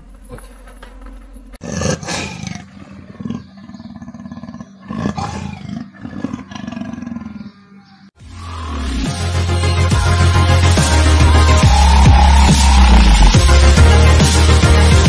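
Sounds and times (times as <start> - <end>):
big cat roaring: 1.6 - 7.6
electronic music: 8.2 - 15.0.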